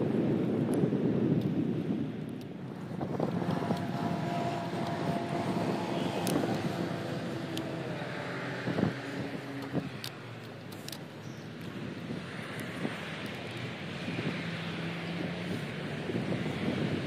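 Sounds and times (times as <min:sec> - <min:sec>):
wind rumble on microphone: 0:00.0 - 0:17.0
car passing: 0:02.6 - 0:17.0
light clicks: 0:09.6 - 0:13.6.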